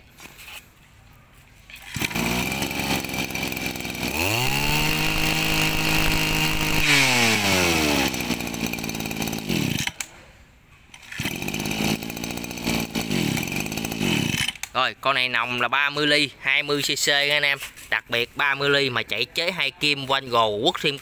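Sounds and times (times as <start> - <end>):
brush cutter engine revving: 1.7 - 10.1, 11.0 - 14.8.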